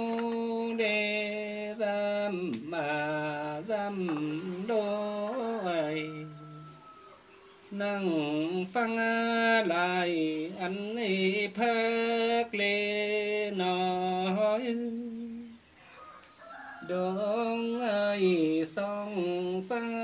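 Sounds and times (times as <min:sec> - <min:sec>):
person singing long sliding notes: 0:00.0 - 0:06.9.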